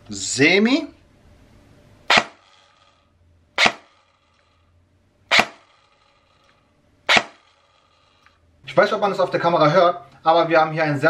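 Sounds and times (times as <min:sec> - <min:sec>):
airsoft gun shots: 0:02.1 - 0:03.0, 0:03.6 - 0:04.4, 0:05.3 - 0:06.4, 0:07.1 - 0:08.0.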